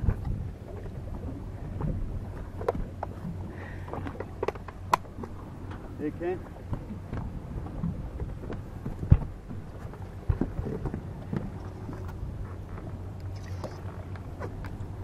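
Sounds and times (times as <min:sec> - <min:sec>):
low engine hum: 0:00.0 - 0:15.0
water against boat hull: 0:00.0 - 0:15.0
wind on microphone: 0:00.0 - 0:15.0
knocks on boat: 0:08.5 - 0:09.6.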